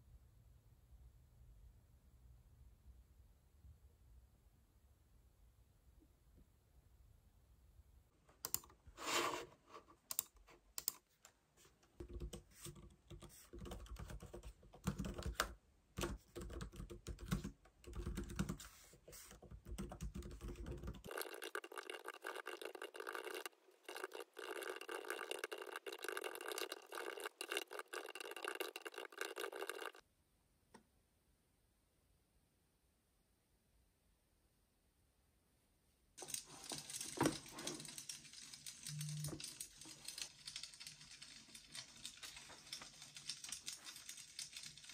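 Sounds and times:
laptop keyboard typing: 12.0 - 30.0, 36.2 - 44.9.

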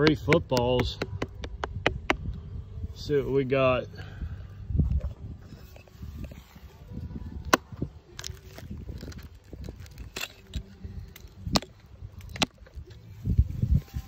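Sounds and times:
dry wood snapping and cracking: 7.4 - 13.0.

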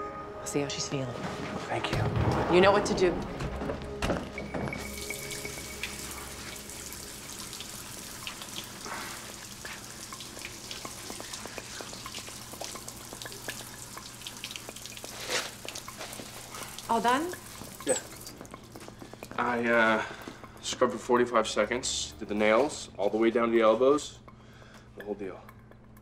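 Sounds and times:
faucet running into sink: 4.8 - 19.7.

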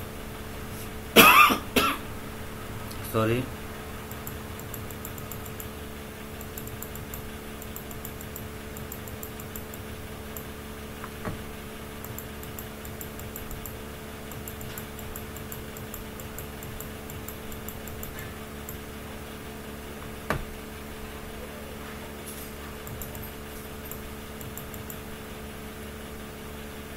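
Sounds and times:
steady low hum: 0.0 - 26.9
mouse scroll wheel clicking: 4.1 - 5.8, 6.4 - 10.5, 12.0 - 18.8, 23.9 - 25.0
sharp mouse clicks: 4.1 - 5.8, 6.4 - 10.5, 12.0 - 18.8, 23.9 - 25.0.

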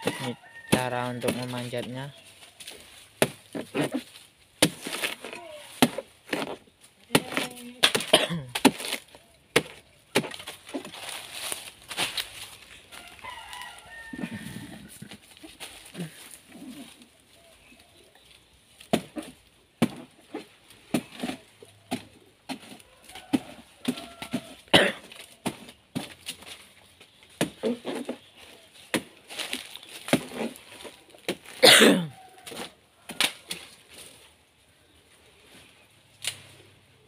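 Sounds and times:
dry leaves brushing: 0.0 - 7.8, 10.1 - 19.4, 27.7 - 31.6
knocks and scrapes on trunk: 30.0 - 31.6.

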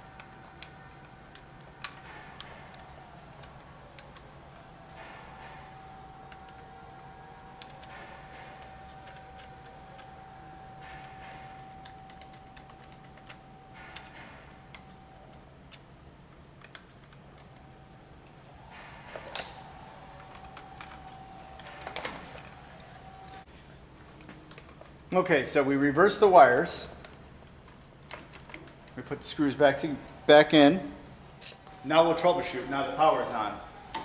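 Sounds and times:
wires and switch clicking: 0.0 - 15.9, 16.6 - 23.4
wires scraping: 16.6 - 25.2.

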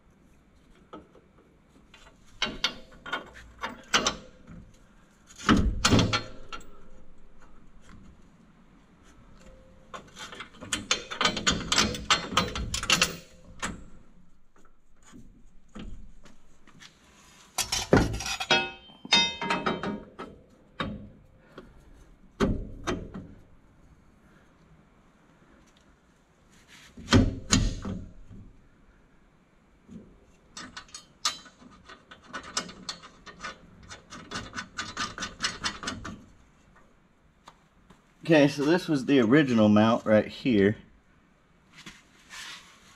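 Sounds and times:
metal knocks clanks and scraping: 2.0 - 8.0, 9.4 - 16.8, 17.5 - 21.7, 30.3 - 36.8.

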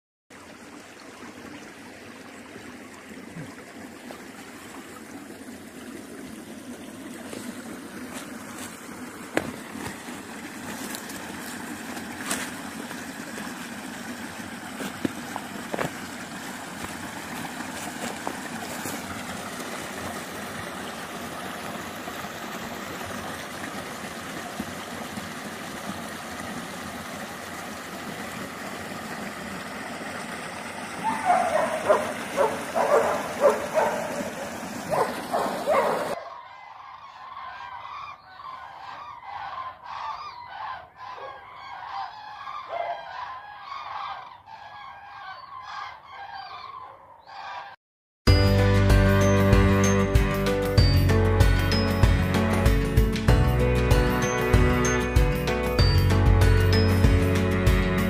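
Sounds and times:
creek water rushing: 0.3 - 36.2.

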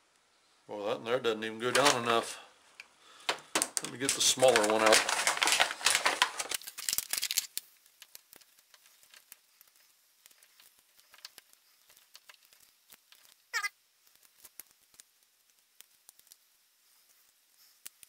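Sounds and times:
plastic bag crinkling: 1.6 - 2.4, 3.1 - 13.6.

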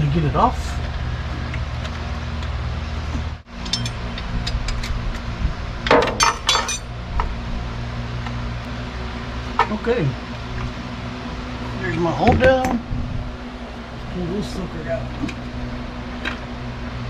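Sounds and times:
low hum: 0.0 - 17.0
hand tools clinking on metal: 3.6 - 4.8, 5.9 - 6.9.

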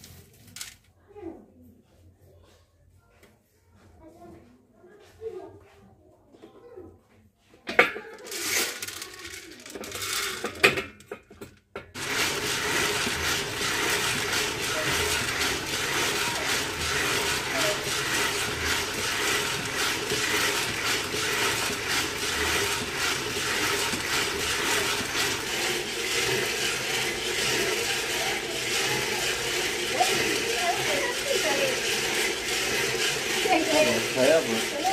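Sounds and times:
coffee beans rattling in drum: 7.7 - 34.9
metal drum clanking: 12.0 - 34.9.

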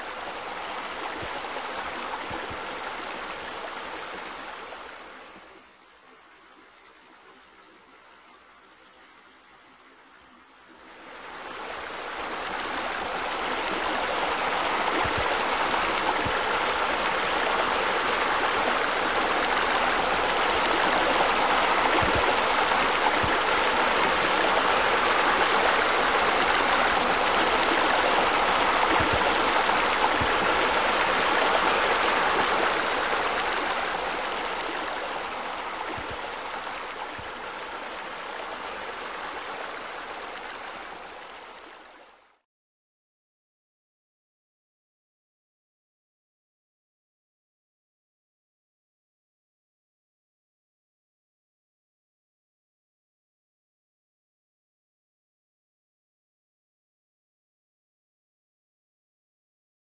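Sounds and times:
waterfall rushing: 11.3 - 41.3.

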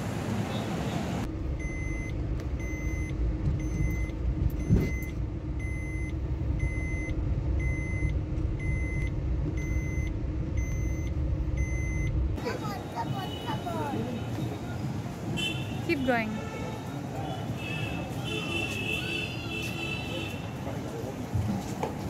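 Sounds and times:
vehicle rumble: 0.0 - 22.0
electronic warning beep: 1.6 - 12.2.

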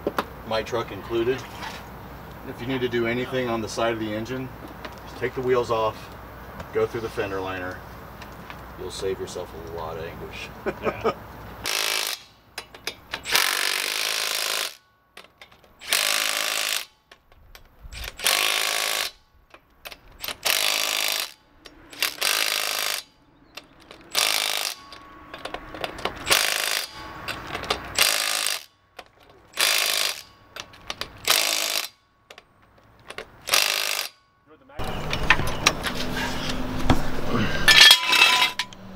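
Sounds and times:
impact wrench bursts: 11.6 - 14.8, 15.4 - 17.0, 17.9 - 19.2, 19.9 - 28.8, 29.5 - 32.0, 33.4 - 35.2.

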